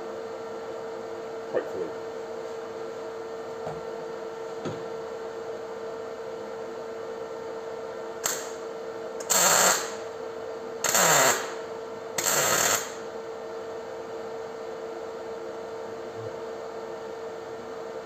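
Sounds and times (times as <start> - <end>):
welding arc crackling: 8.2 - 8.6, 9.2 - 10.0, 10.8 - 11.6, 12.2 - 13.0
welder hum: 8.2 - 10.0, 10.8 - 13.1.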